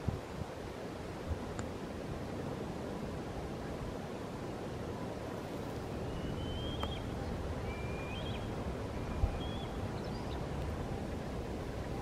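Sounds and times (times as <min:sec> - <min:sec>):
river water murmuring over stones: 0:00.0 - 0:12.0
wind rumbling on microphone: 0:00.0 - 0:12.0
high whistled bird calls: 0:05.9 - 0:10.5.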